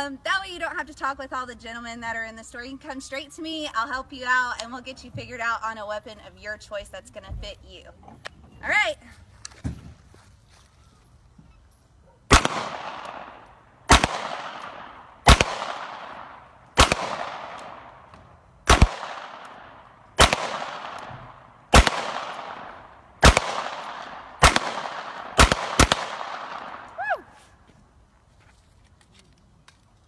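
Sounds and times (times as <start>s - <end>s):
pistol shots with echo: 12.3s - 18.0s, 18.6s - 26.9s.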